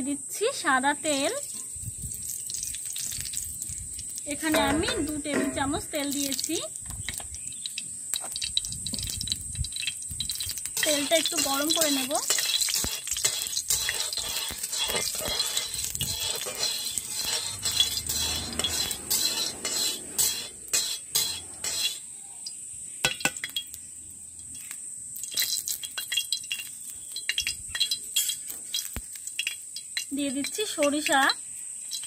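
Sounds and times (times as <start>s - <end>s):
cooking oil hissing: 0.0s - 32.0s
metal utensil clinking and scraping: 4.3s - 6.6s, 9.8s - 22.1s, 25.2s - 31.0s.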